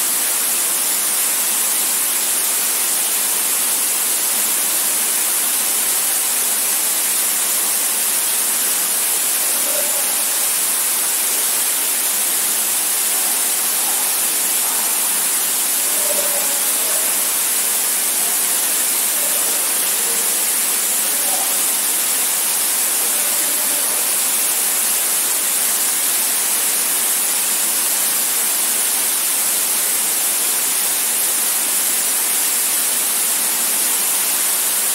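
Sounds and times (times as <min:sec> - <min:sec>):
waterfall rushing into pool: 0:00.0 - 0:34.9.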